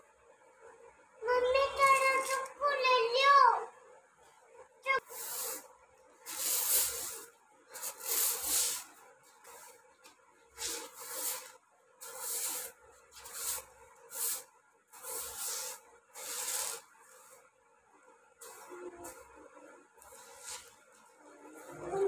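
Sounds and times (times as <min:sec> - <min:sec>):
broom sweeping concrete: 0:04.9 - 0:17.5, 0:18.4 - 0:19.4, 0:20.0 - 0:21.8.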